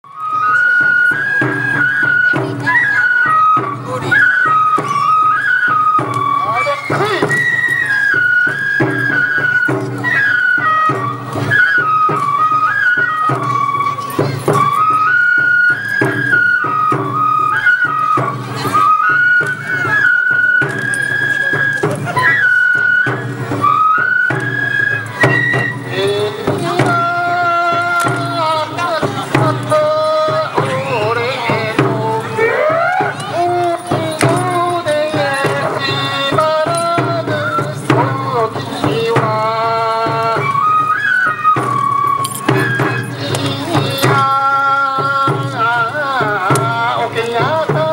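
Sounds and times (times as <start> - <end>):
flute melody: 0.0 - 47.9
drum strokes: 0.3 - 47.9
drum strikes: 25.2 - 40.6.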